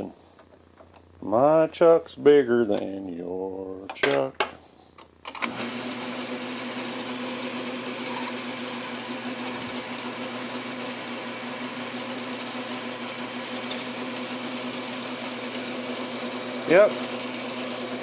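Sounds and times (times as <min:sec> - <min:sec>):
lathe motor humming: 0:05.5 - 0:18.0
drill bit cutting aluminum: 0:07.6 - 0:18.0.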